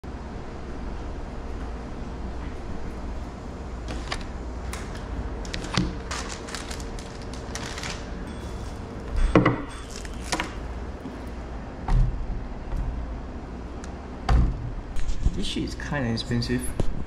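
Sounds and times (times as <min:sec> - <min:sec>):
low steady hum: 0:00.0 - 0:17.0
paper crackling: 0:03.8 - 0:09.1, 0:09.9 - 0:11.3.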